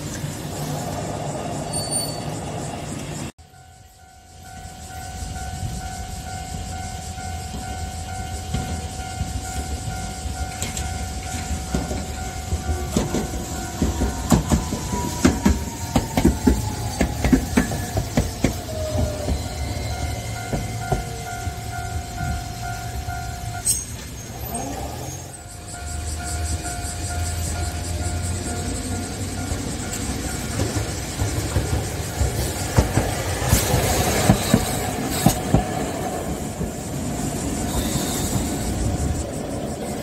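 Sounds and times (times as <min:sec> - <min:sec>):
tram wheels clicking over rail joints: 0:00.0 - 0:40.0
tram whine: 0:00.0 - 0:40.0
level crossing warning bell: 0:01.1 - 0:31.4.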